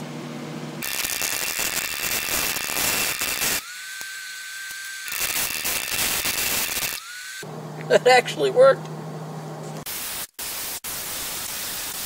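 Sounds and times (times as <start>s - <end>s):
welder crackling and hissing: 0.8s - 7.0s, 9.8s - 12.0s.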